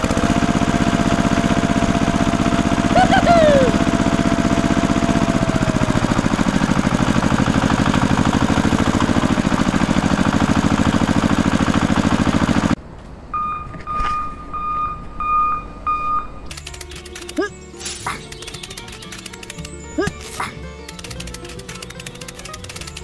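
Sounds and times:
tractor engine running: 0.0s - 13.1s, 15.7s - 23.0s
short beeps: 13.4s - 16.5s.

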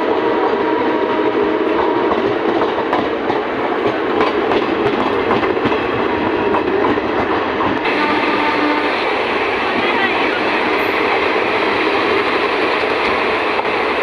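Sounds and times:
trains running on tracks: 0.0s - 14.0s
steel wheels clattering over rails: 1.7s - 7.9s.

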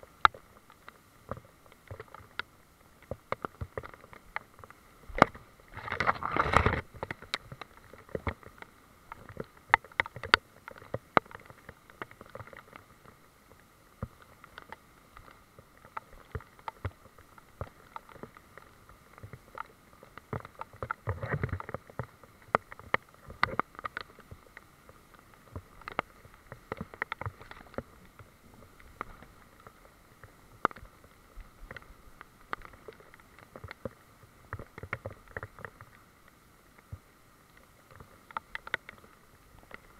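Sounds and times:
rumbling handling noise: 5.1s - 7.2s.

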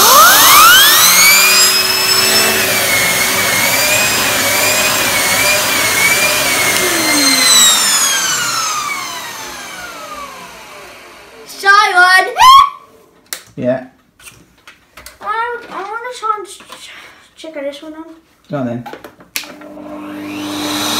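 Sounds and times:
vacuum cleaner motor whining: 0.0s - 11.6s, 19.4s - 20.9s
floor tool on carpet: 1.2s - 11.3s.

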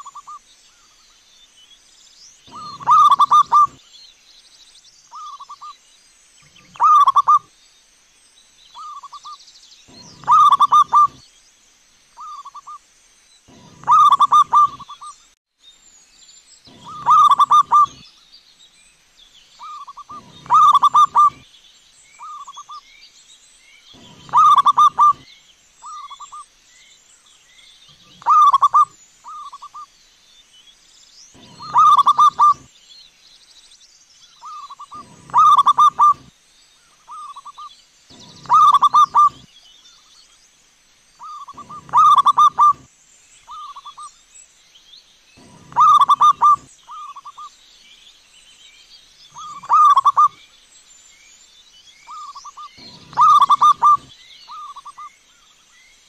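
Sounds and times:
doves cooing: 0.0s - 0.4s, 2.5s - 3.8s, 6.6s - 7.4s, 9.9s - 11.2s, 13.5s - 15.0s, 16.7s - 18.0s, 19.6s - 21.4s, 24.0s - 25.2s, 28.0s - 29.8s, 31.4s - 32.7s, 34.4s - 36.3s, 38.1s - 39.5s, 41.2s - 42.9s, 45.4s - 47.3s, 49.4s - 50.4s, 52.1s - 55.0s.

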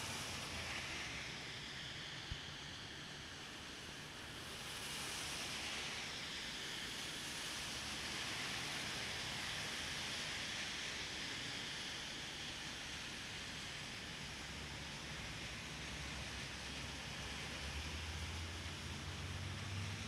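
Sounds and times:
rain falling on street: 7.2s - 11.4s.

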